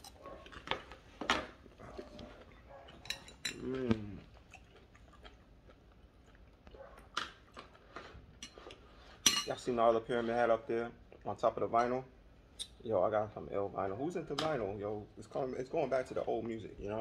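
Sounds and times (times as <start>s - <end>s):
person chewing: 0.0s - 9.2s
cutlery clinking on a plate: 3.0s - 3.6s, 9.2s - 9.6s
short falling vocal sound: 3.6s - 4.2s.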